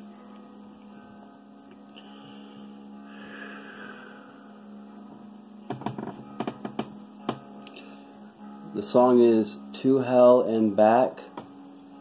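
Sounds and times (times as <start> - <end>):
soft airy hiss: 0.0 - 5.7
low electrical hum: 0.0 - 12.0.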